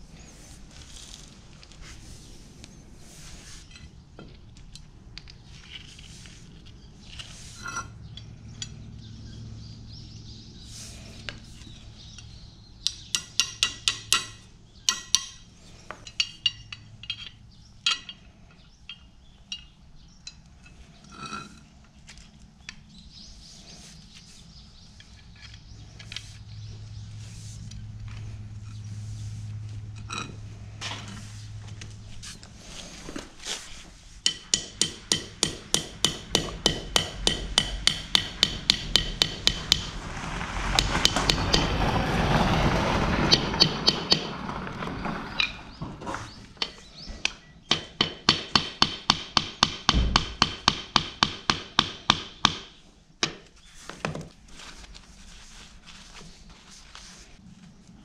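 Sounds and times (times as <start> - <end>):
steel parts clinking and clicking: 12.2 - 21.7.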